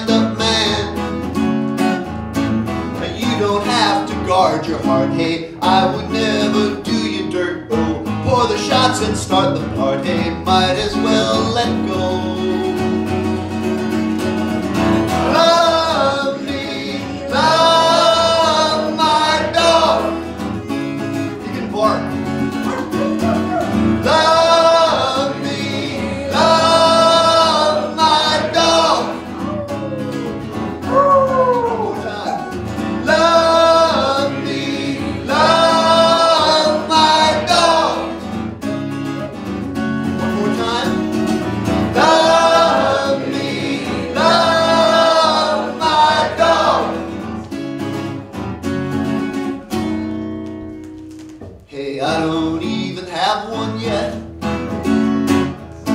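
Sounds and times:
man singing: 0.0 - 1.2, 2.9 - 13.0, 15.1 - 38.8, 40.2 - 46.9, 51.6 - 54.3
strummed acoustic guitars: 0.0 - 55.9.

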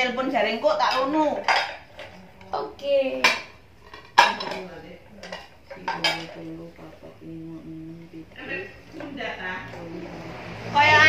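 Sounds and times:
china plates clinking: 0.8 - 2.5, 3.2 - 7.0.

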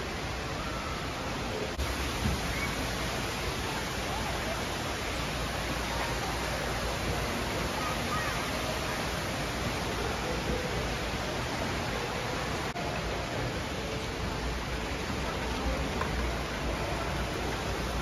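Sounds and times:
faint voices: 0.0 - 18.0
falling water rushing: 0.0 - 18.0.

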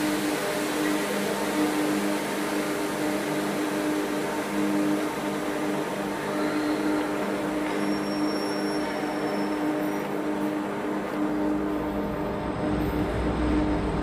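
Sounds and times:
train carriage mechanical hum: 0.0 - 14.0
low droning tone: 10.6 - 14.0.

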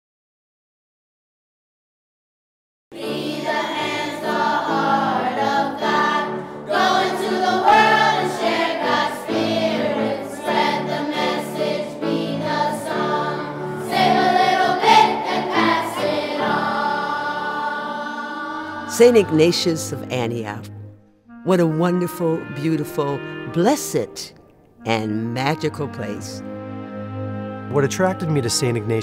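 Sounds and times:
children's choir singing: 2.9 - 19.8.

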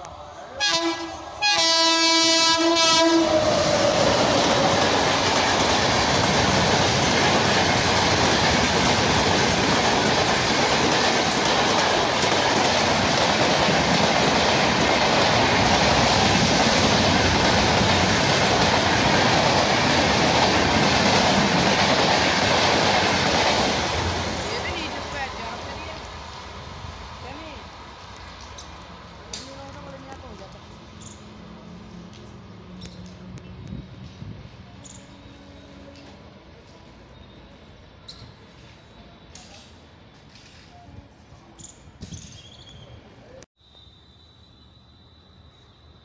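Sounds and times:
passing train rumble and wheel clatter: 0.0 - 43.5
locomotive horn: 0.6 - 3.8.

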